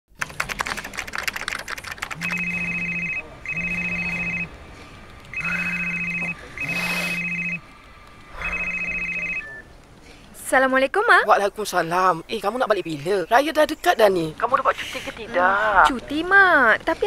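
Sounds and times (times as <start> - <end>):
fast typing on keyboard: 0.2 - 2.5
smartphone ringing: 2.2 - 4.5, 5.3 - 7.6, 8.4 - 9.6.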